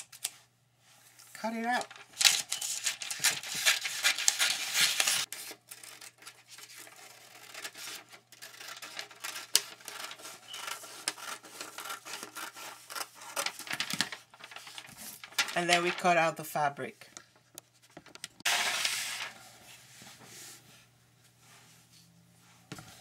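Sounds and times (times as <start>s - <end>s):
paper rustling and crackling: 1.4s - 16.4s
scissors cutting paper: 2.2s - 13.7s.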